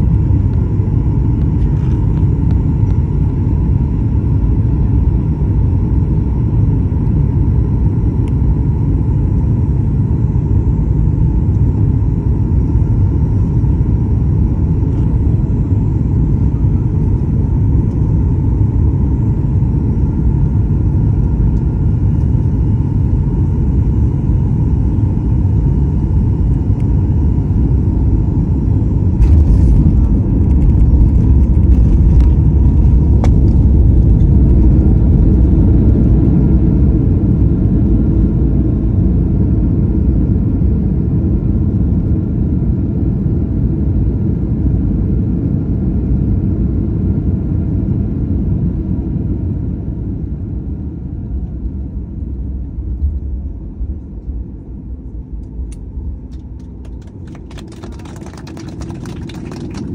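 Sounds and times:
jet engines rumbling: 0:00.0 - 0:40.7, 0:48.6 - 0:59.9
wheels rumbling on runway: 0:28.8 - 0:37.0, 0:55.6 - 0:59.9.

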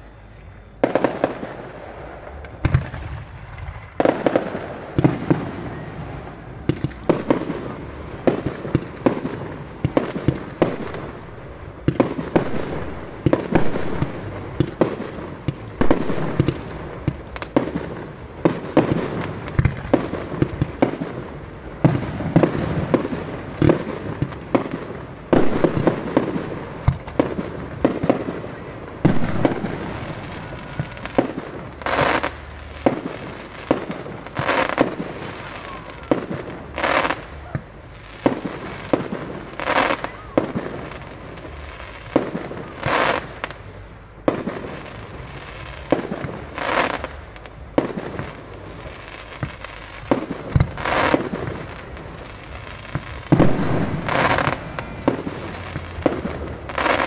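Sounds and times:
fireworks bursting: 0:00.0 - 0:57.0.

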